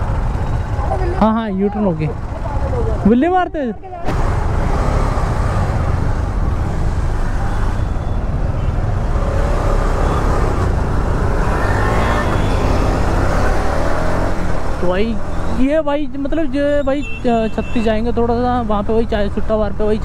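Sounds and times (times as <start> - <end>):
road and traffic rumble: 0.0 - 20.0.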